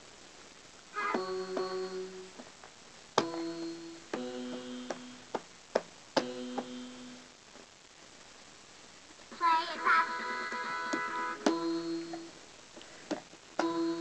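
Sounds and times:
keyboard-like electronic notes: 1.0 - 2.3, 3.2 - 5.3, 6.2 - 7.2, 10.0 - 12.3, 13.6 - 14.0
toy drum hits: 3.2 - 5.0, 10.5 - 12.2.

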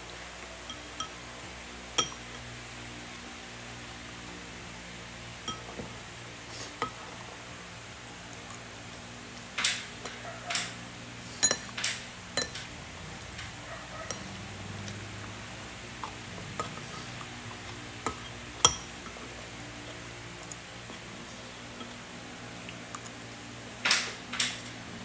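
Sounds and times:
spoon clink: 2.0 - 2.2, 5.5 - 5.7, 11.4 - 11.7, 12.4 - 12.6, 18.6 - 18.9.

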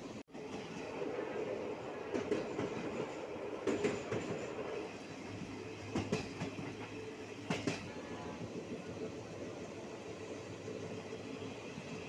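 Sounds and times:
train wheels rumbling on track: 0.0 - 12.0
wheels clacking over rail joints: 5.9 - 7.9.

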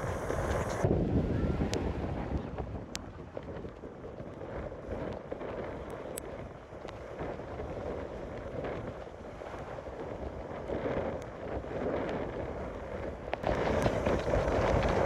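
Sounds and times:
wind buffeting microphone: 0.0 - 15.0
surf breaking against seawall: 13.4 - 15.0.

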